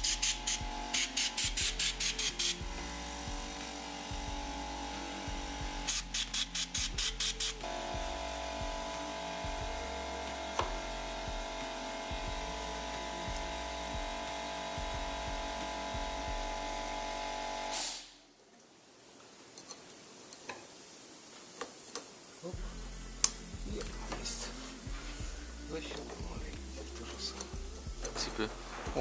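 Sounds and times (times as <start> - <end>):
music with pulsing low beat: 0.0 - 17.7, 22.6 - 29.0
handling noise with light clicks: 19.5 - 20.7.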